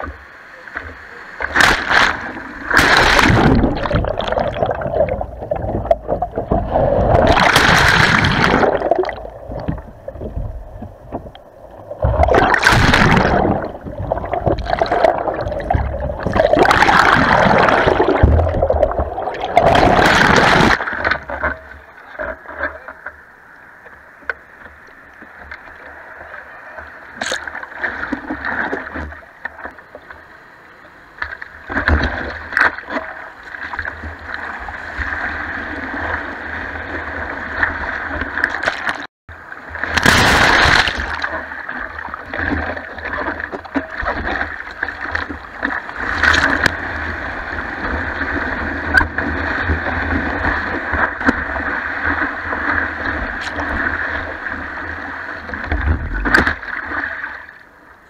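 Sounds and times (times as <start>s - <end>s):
whitewater rushing and splashing: 0.0s - 9.7s, 12.0s - 21.5s, 39.7s - 57.4s.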